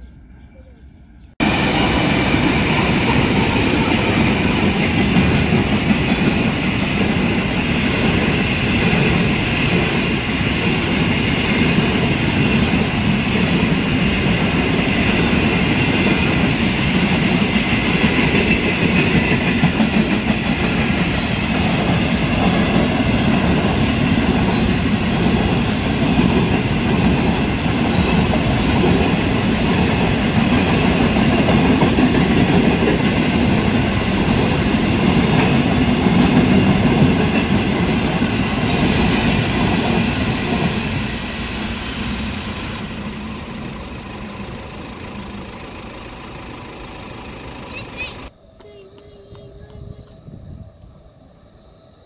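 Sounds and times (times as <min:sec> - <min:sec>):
diesel locomotive passing: 0:00.0 - 0:52.0
train wheels on rails: 0:01.4 - 0:50.9.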